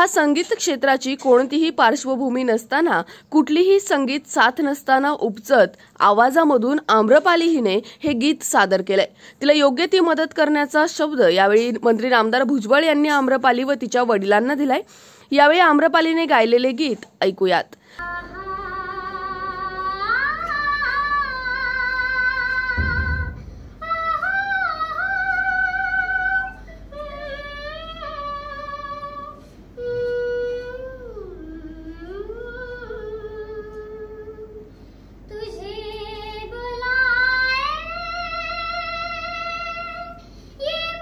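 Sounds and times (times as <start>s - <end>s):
girl singing unaccompanied: 18.0s - 34.7s, 35.3s - 41.0s.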